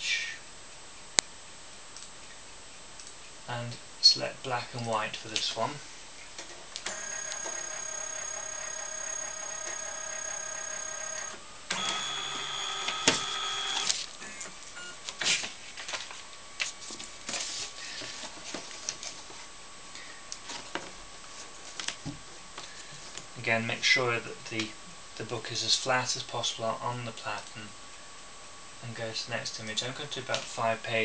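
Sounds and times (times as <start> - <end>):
scanner motor whining: 6.9 - 14.0.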